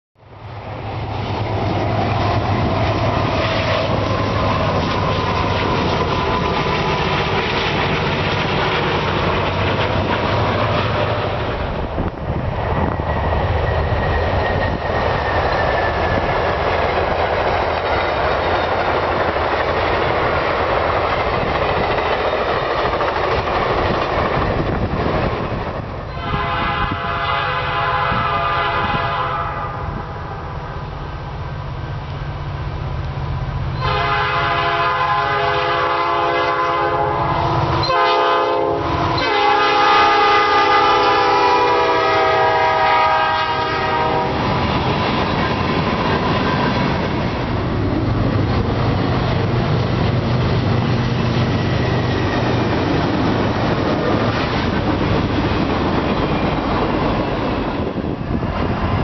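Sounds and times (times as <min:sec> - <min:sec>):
train rumbling past: 0:00.2 - 0:59.0
train horn: 0:03.3 - 0:05.3, 0:26.1 - 0:30.8, 0:33.8 - 0:44.5.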